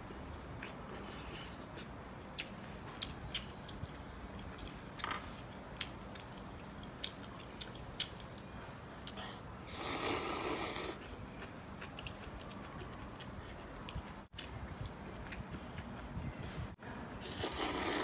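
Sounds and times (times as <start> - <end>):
chewing and mouth smacks: 0.6 - 9.3, 10.9 - 16.2
loud noodle slurp: 9.7 - 11.0, 17.2 - 18.0.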